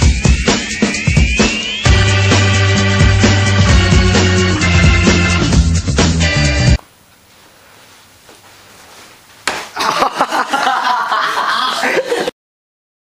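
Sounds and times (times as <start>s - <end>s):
upbeat background music: 0.0s - 6.8s.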